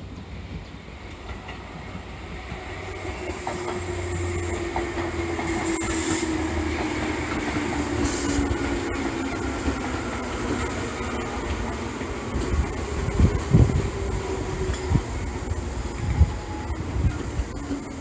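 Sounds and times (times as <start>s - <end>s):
electric train rumbling past: 0.0s - 18.0s
wheels clicking on rails: 1.1s - 18.0s.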